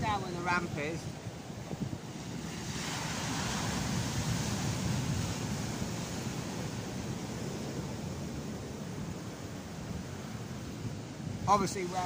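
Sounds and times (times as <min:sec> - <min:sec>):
sea surf breaking: 0:00.0 - 0:12.0.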